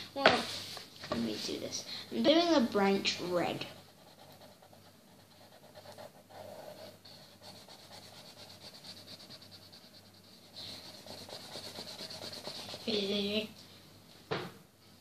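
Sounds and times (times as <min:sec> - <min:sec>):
marker rubbing on paper: 0:03.5 - 0:13.3.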